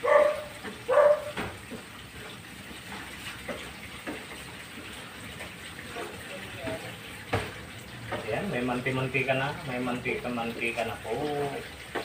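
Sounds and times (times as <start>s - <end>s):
dog barks: 0.0s - 1.5s
coconut milk simmering: 0.0s - 12.0s.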